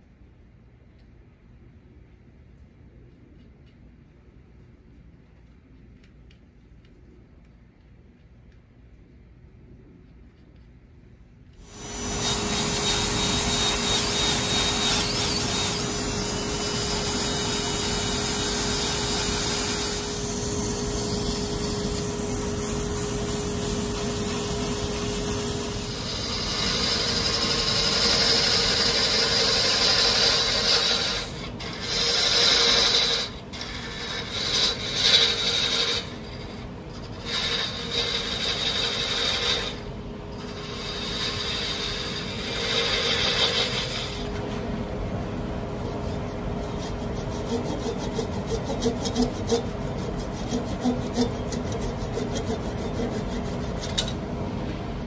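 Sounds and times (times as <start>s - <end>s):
steady machine hum: 11.5s - 55.0s
sanding disc rubbing wood: 11.7s - 39.8s, 40.4s - 44.3s, 45.9s - 54.0s.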